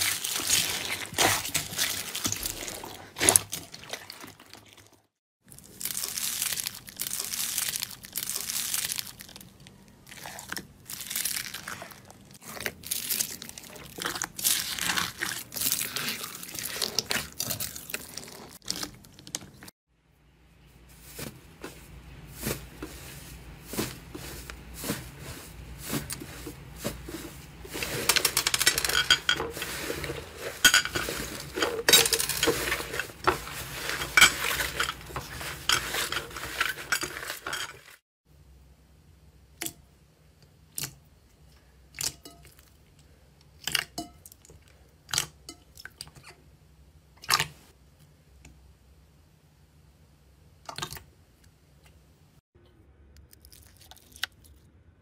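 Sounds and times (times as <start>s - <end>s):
foam beads crunching: 5.5s - 9.5s, 10.1s - 19.0s, 22.3s - 38.0s
slime crackling and popping: 5.5s - 9.5s.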